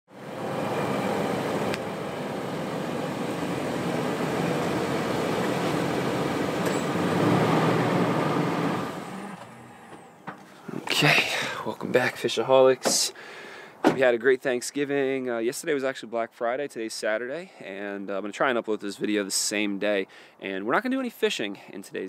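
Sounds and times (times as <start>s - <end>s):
car engine running: 0.2s - 10.4s.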